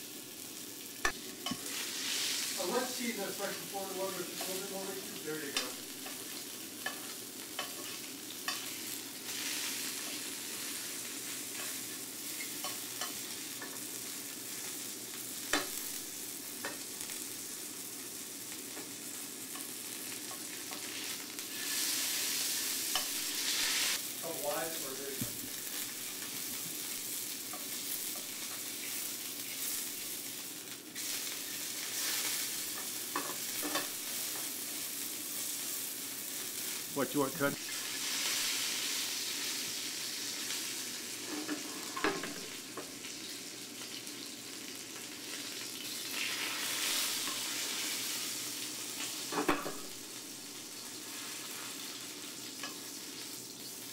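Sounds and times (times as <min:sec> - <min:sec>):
meat sizzling in pan: 0:00.0 - 0:53.9.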